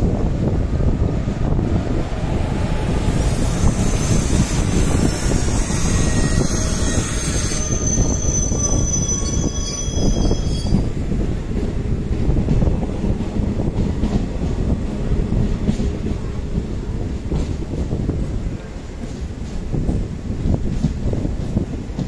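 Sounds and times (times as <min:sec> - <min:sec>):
train wheels rumbling on rail: 0:00.0 - 0:22.0
high-pitched wheel squeal: 0:03.1 - 0:10.9.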